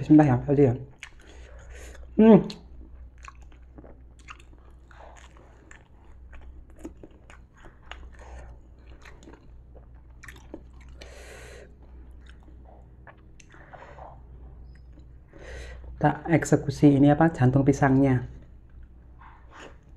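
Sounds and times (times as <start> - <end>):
person chewing crispy food: 0.8 - 15.9.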